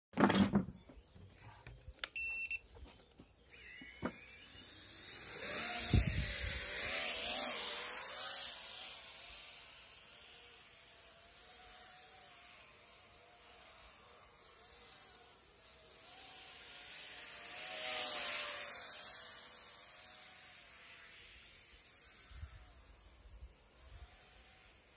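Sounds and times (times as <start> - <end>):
drone motors buzzing whine: 0.7 - 24.9
short electronic beep: 2.2 - 2.7.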